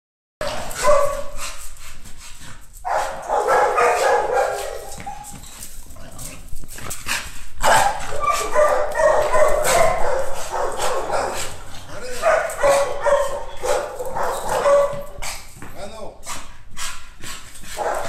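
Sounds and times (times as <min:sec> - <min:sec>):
dog barking: 0:00.4 - 0:01.6, 0:02.8 - 0:05.4, 0:07.6 - 0:15.5, 0:17.7 - 0:18.0.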